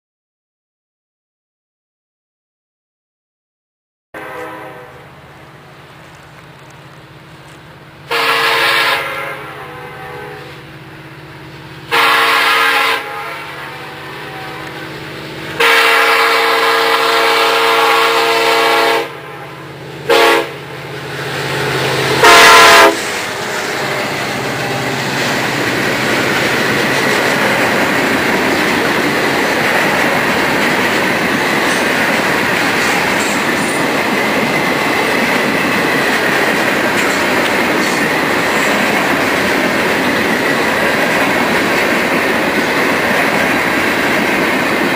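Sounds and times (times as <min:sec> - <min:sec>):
train air horn blasts: 0:04.2 - 0:05.3, 0:08.0 - 0:10.8, 0:11.8 - 0:20.8, 0:21.9 - 0:25.2
freight train rumbling by: 0:04.2 - 0:44.9.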